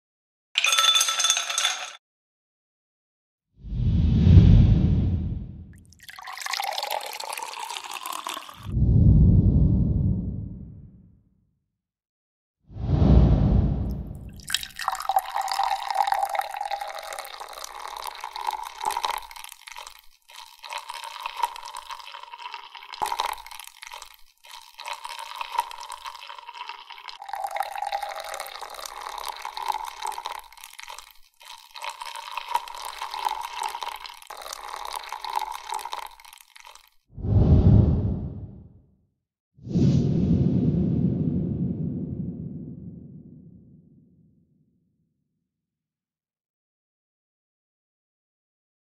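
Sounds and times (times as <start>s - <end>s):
milk pouring over ice: 5.8s - 8.7s, 14.3s - 37.0s.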